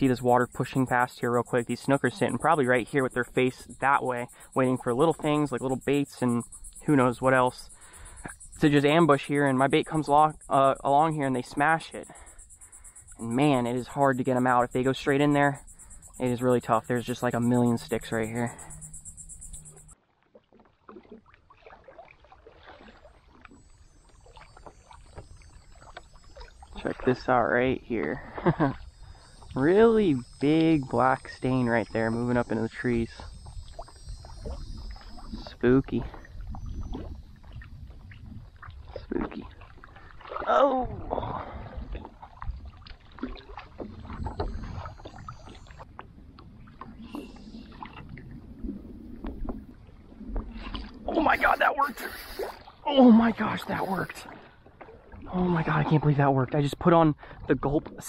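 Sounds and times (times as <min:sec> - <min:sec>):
small water splashes and trickles: 0:19.9 - 0:58.0
water slapping against paddleboard: 0:20.2 - 0:23.5, 0:41.8 - 0:52.9
wind rumbling on microphone: 0:25.1 - 0:54.2.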